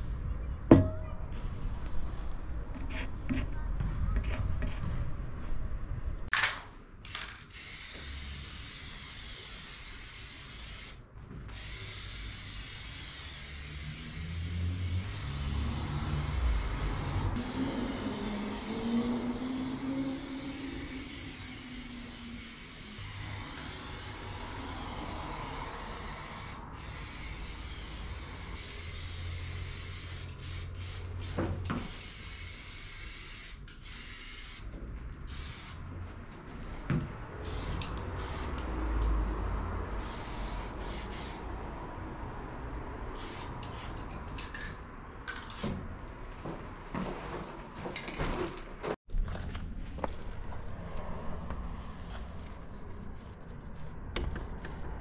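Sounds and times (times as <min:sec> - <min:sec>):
spray paint can hissing: 0:07.5 - 0:34.7, 0:35.3 - 0:35.8, 0:37.4 - 0:38.7, 0:40.0 - 0:41.4, 0:43.2 - 0:44.1.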